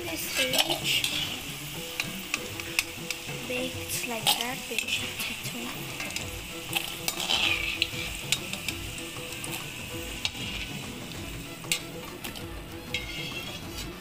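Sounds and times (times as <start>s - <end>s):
potatoes sizzling in hot oil: 0.0s - 14.0s
metal skimmer scraping pan: 0.1s - 14.0s.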